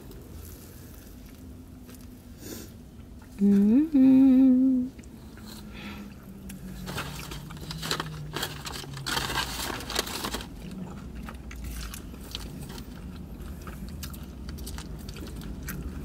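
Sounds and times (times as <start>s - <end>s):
person humming mmm: 3.4s - 5.0s
crunchy biting and chewing: 5.0s - 16.0s.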